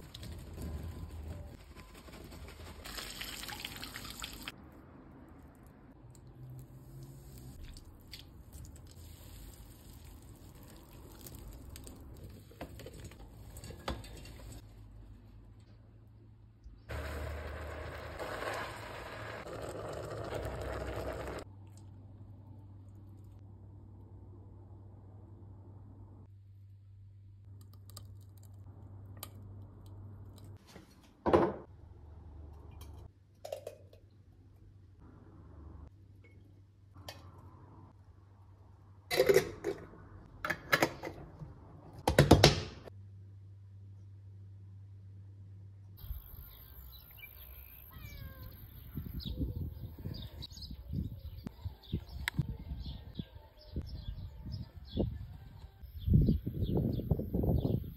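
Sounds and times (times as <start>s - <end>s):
water dripping and squishing: 2.7s - 4.6s, 5.4s - 13.2s.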